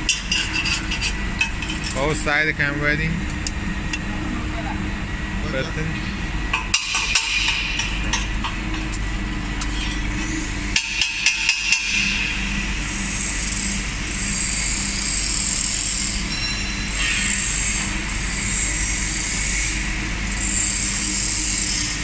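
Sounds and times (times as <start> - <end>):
welding machine drone: 0.0 - 22.0
sharp metallic knocks: 6.5 - 8.6.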